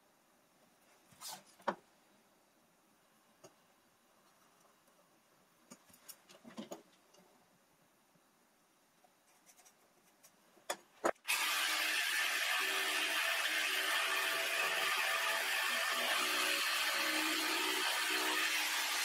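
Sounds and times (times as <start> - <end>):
jigsaw running: 11.3 - 19.0.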